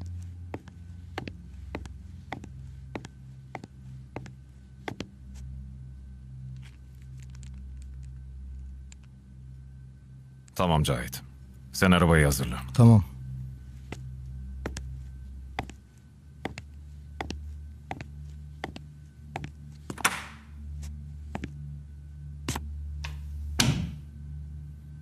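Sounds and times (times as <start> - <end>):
low steady hum: 0.0 - 25.0
footsteps on hard floor: 0.6 - 5.1.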